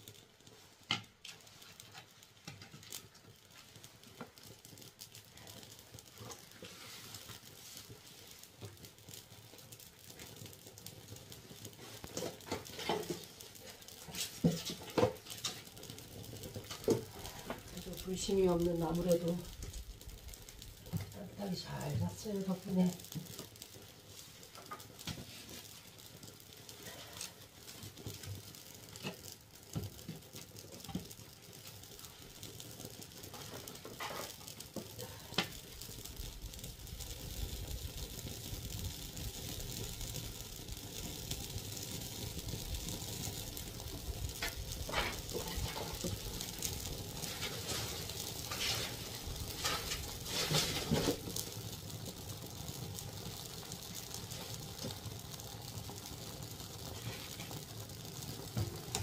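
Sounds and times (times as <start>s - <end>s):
low rushing fire: 0.0s - 59.0s
wood fire crackling: 0.0s - 59.0s.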